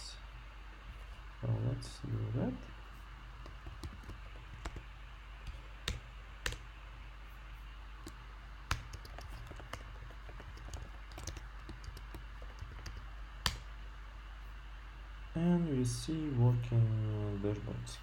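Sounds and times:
faint steady hum: 0.0s - 18.0s
keyboard and mouse clicks: 3.4s - 6.7s, 8.0s - 13.7s.

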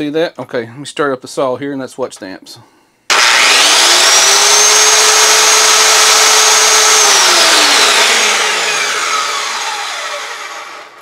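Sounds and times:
circular saw whine: 3.1s - 11.0s.

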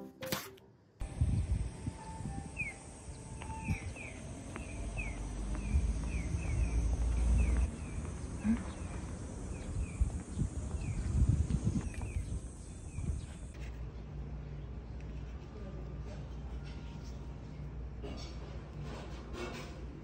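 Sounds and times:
small birds chirping: 2.4s - 13.6s.

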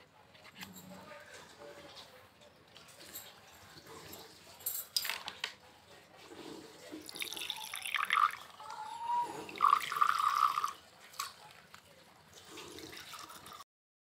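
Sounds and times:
juice pouring into a glass: 7.0s - 11.4s, 12.3s - 13.6s.

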